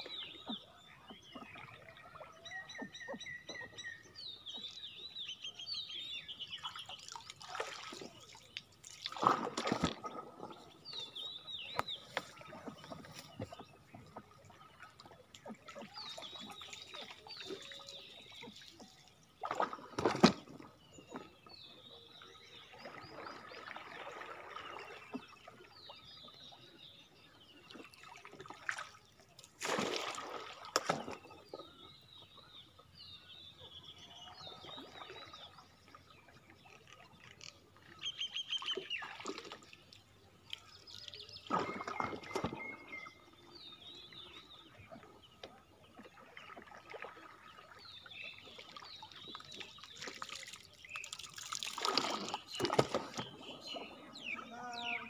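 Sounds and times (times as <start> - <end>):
birds chirping: 0.0 - 29.6, 30.9 - 55.0
water splashing and sloshing: 0.0 - 55.0
pole strokes splashing: 7.1 - 10.8, 28.3 - 31.4, 49.8 - 53.8.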